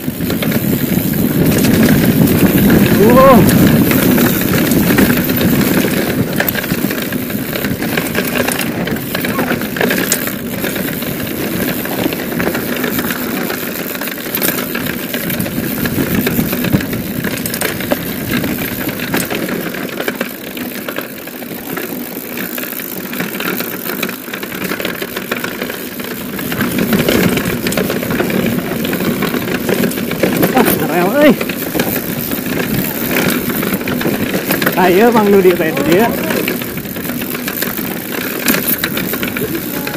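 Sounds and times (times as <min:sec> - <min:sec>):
wind rushing over microphone: 0:00.0 - 0:13.5, 0:14.8 - 0:19.3
bike clicks and rattles: 0:00.0 - 0:39.9
tyre noise on dirt: 0:00.0 - 0:39.9.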